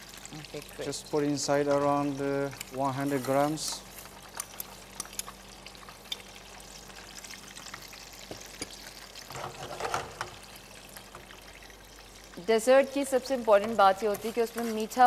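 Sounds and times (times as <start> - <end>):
sugar grains pattering in pan: 0.0 - 8.9, 13.3 - 15.0.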